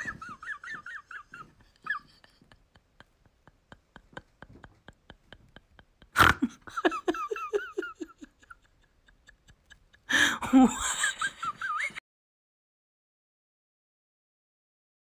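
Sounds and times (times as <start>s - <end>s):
person laughing: 0.0s - 12.0s.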